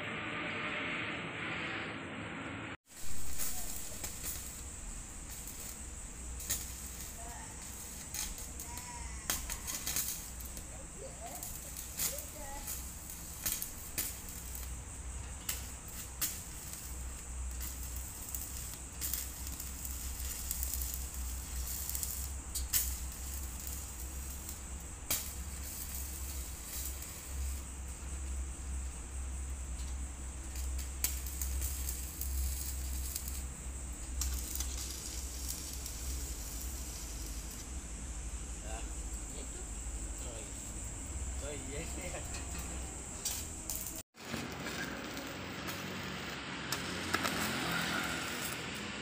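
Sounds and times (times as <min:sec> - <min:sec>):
low hum: 0:00.0 - 0:10.8
welding arc crackling: 0:02.8 - 0:49.0.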